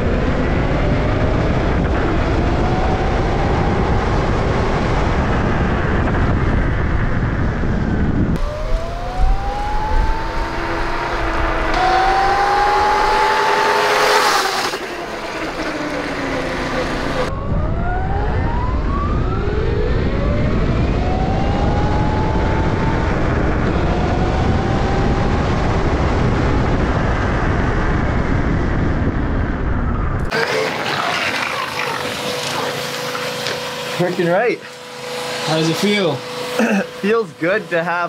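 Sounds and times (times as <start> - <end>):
wind rumble on camera: 0.0 - 30.4
electric motorbike whining: 0.0 - 38.0.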